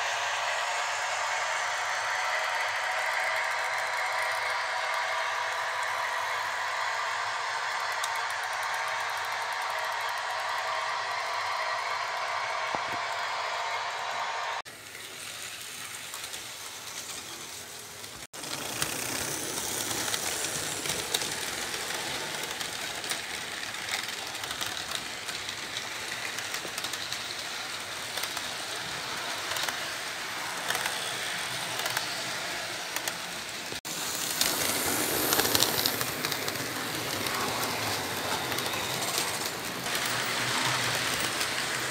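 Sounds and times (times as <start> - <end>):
model train wheels clattering: 14.8 - 41.9.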